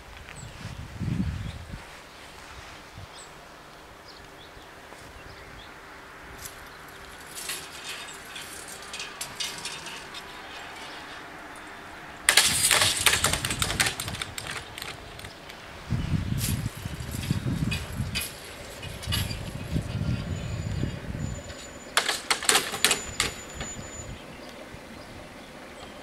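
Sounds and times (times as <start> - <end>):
loud crackling rattling noise: 6.4 - 15.6, 16.4 - 19.8, 21.9 - 23.8.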